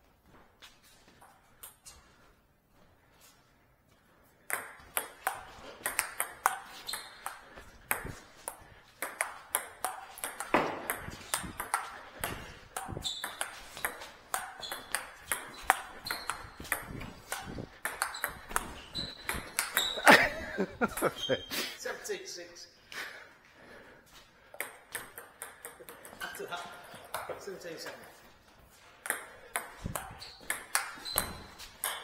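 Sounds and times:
table tennis ball clicks: 4.5s - 20.0s, 29.0s - 32.0s.

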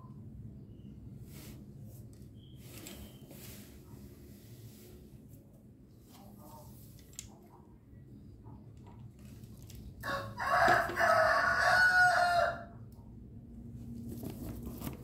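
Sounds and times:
rooster crowing: 10.0s - 12.8s.

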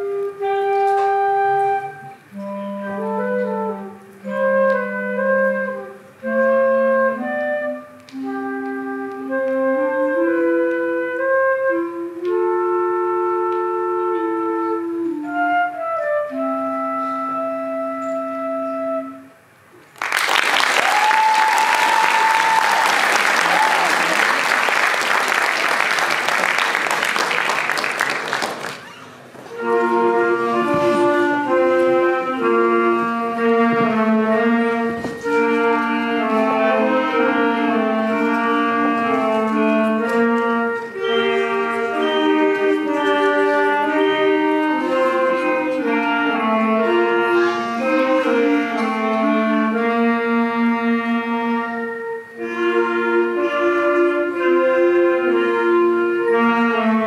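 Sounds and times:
wind band playing: 0.0s - 28.8s, 29.4s - 57.0s
audience applause: 19.9s - 29.2s.

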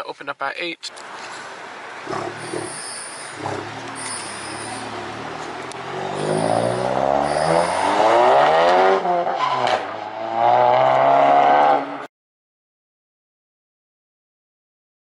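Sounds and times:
car engine accelerating hard: 1.7s - 12.0s.

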